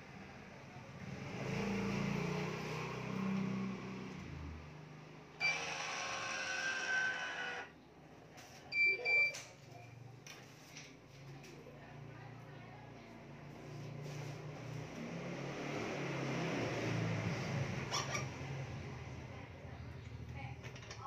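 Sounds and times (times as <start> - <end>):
electronic tensioner running: 5.4 - 7.7.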